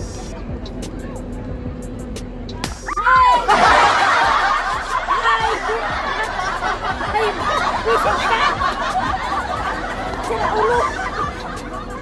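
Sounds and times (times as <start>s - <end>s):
women laughing: 3.2s - 12.0s.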